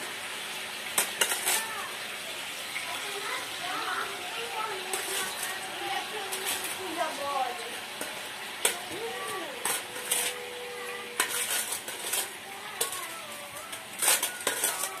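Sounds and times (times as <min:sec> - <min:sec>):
food sizzling in oil: 0:00.0 - 0:15.0
metal spoon scraping a pan: 0:00.9 - 0:01.8, 0:04.5 - 0:07.3, 0:07.9 - 0:15.0.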